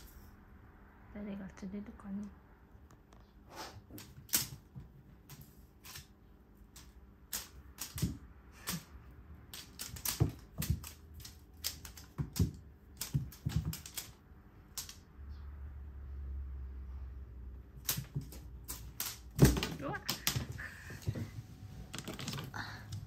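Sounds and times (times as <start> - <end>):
paws clicking on hardwood floor: 6.8 - 14.2.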